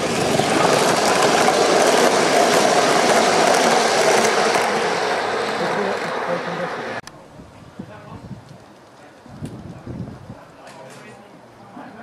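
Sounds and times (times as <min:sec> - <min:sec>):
model train wheels rolling on rail: 0:00.0 - 0:07.2.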